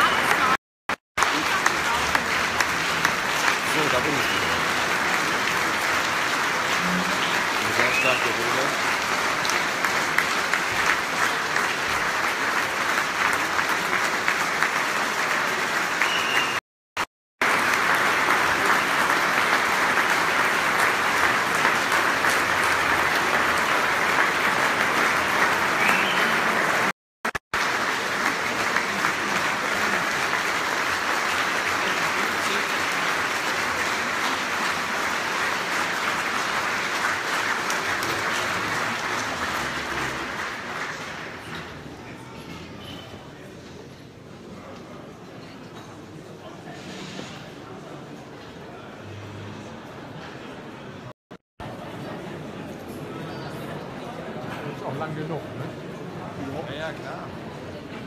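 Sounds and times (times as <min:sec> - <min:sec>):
audience applauding: 0:00.0 - 0:00.6, 0:01.2 - 0:16.6, 0:17.4 - 0:41.9.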